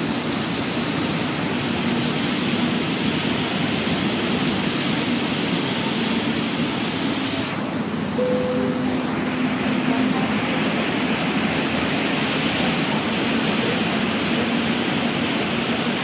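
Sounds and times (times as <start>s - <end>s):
water rushing in ferry wake: 0.0s - 16.0s
faint engine hum: 5.9s - 16.0s.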